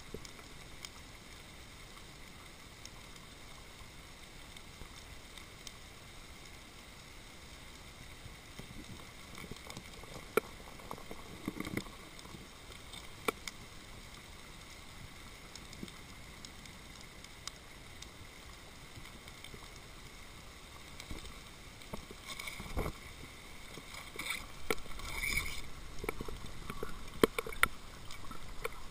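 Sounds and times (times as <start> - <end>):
faint steady underwater hiss: 0.0 - 28.9
rustling noise: 20.9 - 28.9.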